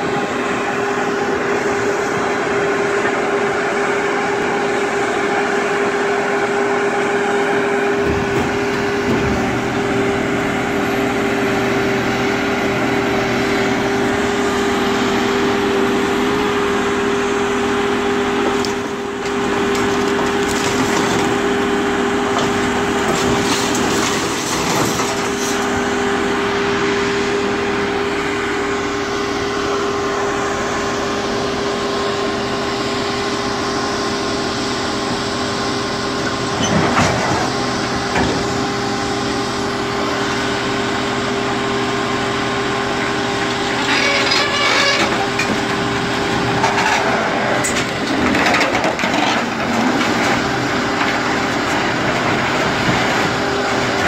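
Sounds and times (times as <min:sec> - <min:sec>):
engine and hydraulics whining: 0:00.0 - 0:54.0
grapple clanking against scrap metal: 0:18.5 - 0:21.6, 0:22.2 - 0:25.8, 0:43.5 - 0:54.0.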